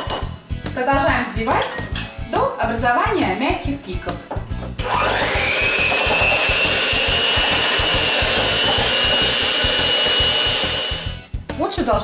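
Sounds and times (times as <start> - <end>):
electric mixer whining: 4.8 - 11.2.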